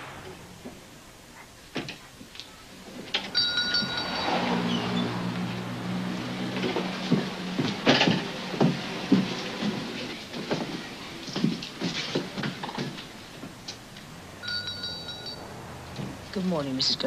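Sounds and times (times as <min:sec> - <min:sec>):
short high ringing tone: 0:03.3 - 0:04.8, 0:14.4 - 0:15.4
knocks and clatter of handling: 0:06.5 - 0:13.8.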